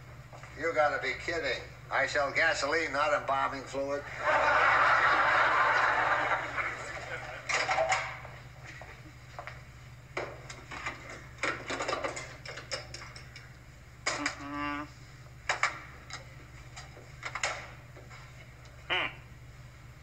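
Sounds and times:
steady low hum: 0.0s - 20.0s
vending machine buzz: 3.8s - 8.8s, 10.5s - 16.3s.

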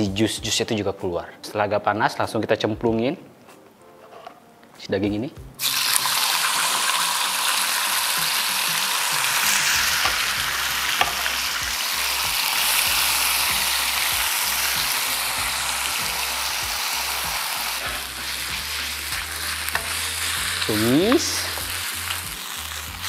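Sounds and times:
meat sizzling in hot oil: 5.6s - 23.0s.

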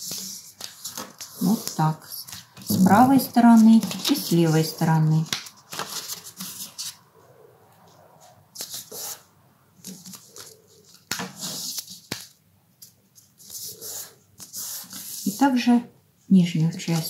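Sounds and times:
paper rustling and crackling: 0.0s - 7.1s, 9.8s - 15.4s.

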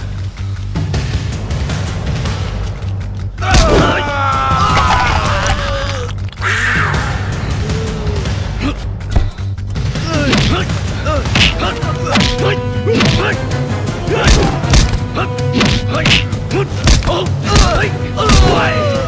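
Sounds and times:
action background music: 0.0s - 19.0s
fighters grunting and shouting: 3.4s - 9.1s, 9.9s - 19.0s
punch and kick impacts: 3.5s - 4.0s, 16.8s - 18.6s.

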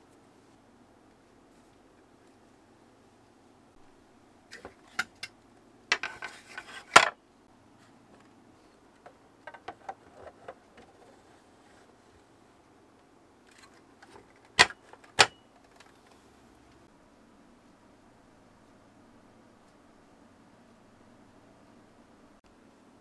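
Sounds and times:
plastic clicks and knocks: 9.0s - 10.9s.

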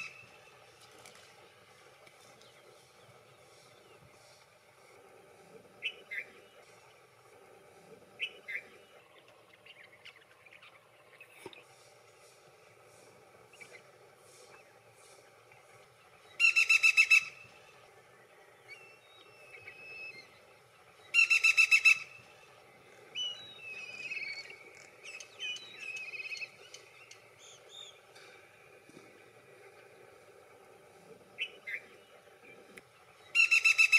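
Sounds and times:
woodpecker calling: 16.3s - 17.4s, 21.0s - 22.2s, 31.4s - 33.9s.

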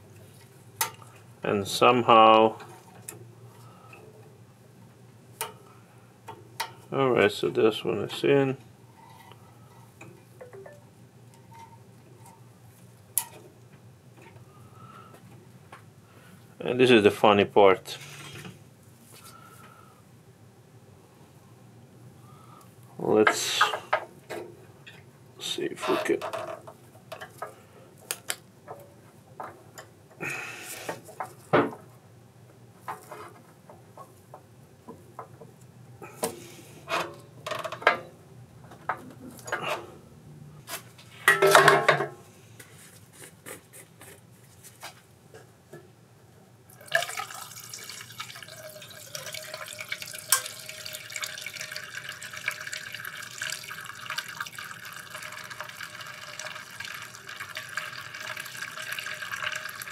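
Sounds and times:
stream of liquid running: 46.7s - 59.9s.

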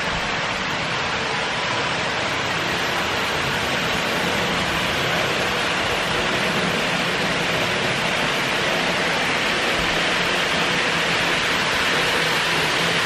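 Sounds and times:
model train wheels whirring on track: 0.0s - 13.0s.

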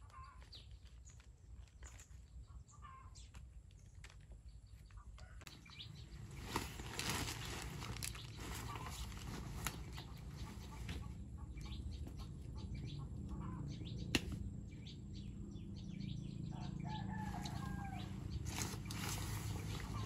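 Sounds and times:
chicken calling: 16.6s - 18.9s.

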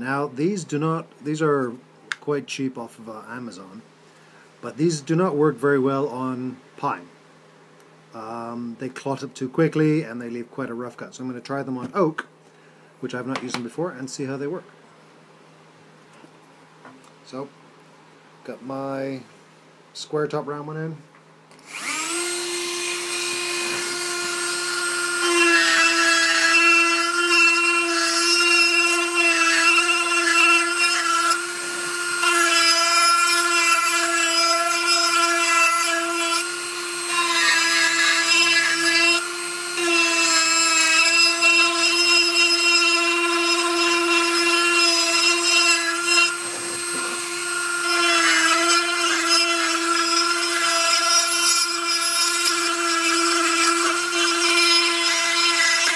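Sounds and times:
rotary tool grinding into wood: 21.6s - 55.9s.

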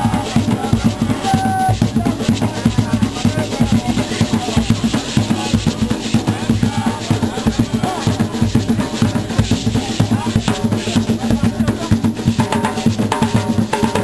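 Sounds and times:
fast drum strikes: 0.0s - 14.0s
steady low beat: 0.0s - 14.0s.

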